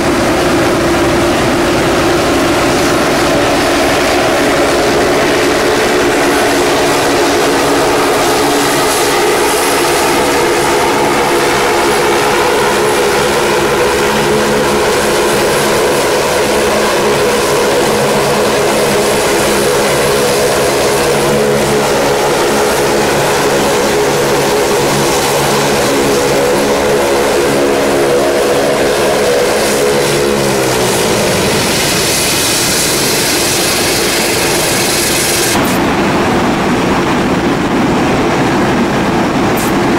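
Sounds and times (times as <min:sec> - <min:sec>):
engines spooling down: 0:00.0 - 0:39.9
turboprop engines idling: 0:00.0 - 0:39.9.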